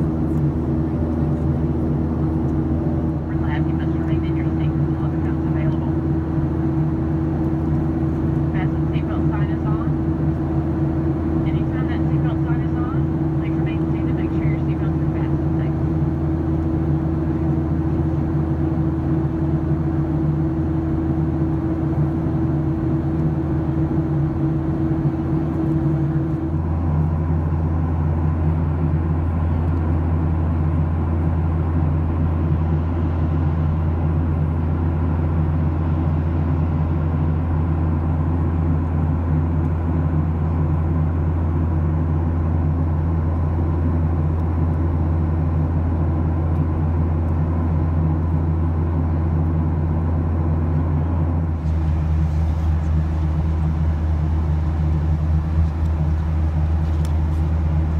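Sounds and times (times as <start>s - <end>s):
jet engine cabin drone: 0.0s - 57.9s
steady hum: 0.0s - 57.9s.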